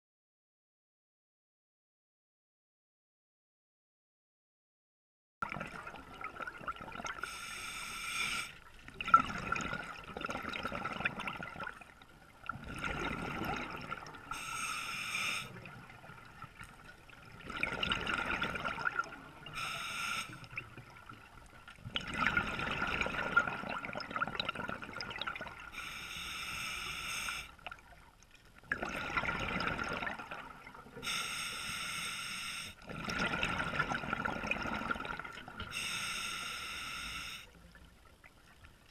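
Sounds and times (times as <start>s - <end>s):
exhaled bubbles underwater: 5.4s - 7.3s, 8.5s - 25.9s, 27.4s - 31.2s, 32.8s - 35.8s
diver inhaling through regulator: 7.2s - 8.6s, 14.3s - 15.6s, 19.6s - 20.5s, 25.7s - 27.6s, 31.0s - 32.8s, 35.7s - 37.5s.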